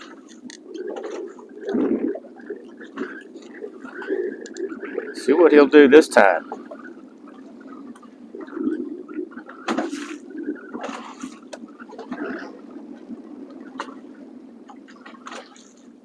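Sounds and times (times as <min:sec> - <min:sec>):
water slapping against boat hull: 0:06.1 - 0:16.0.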